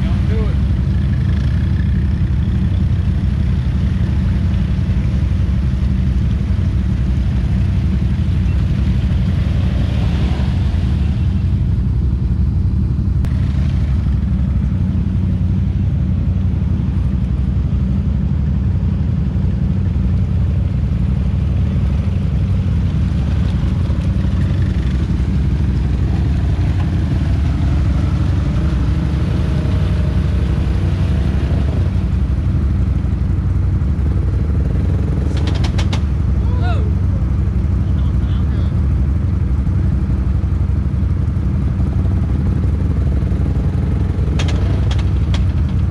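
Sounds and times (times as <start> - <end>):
atv engines droning: 0.0 - 45.9
fainter engine notes: 19.1 - 38.8.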